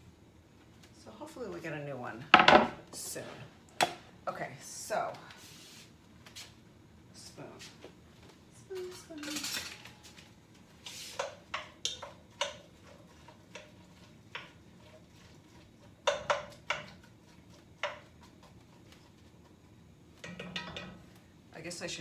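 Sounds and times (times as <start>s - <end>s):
wooden spoon knocking pot: 16.0s - 17.0s.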